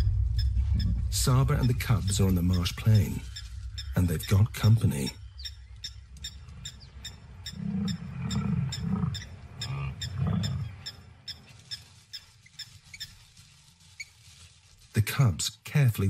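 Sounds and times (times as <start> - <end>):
regular high ticking: 0.0 - 9.8
buffalo grunting: 7.5 - 10.8.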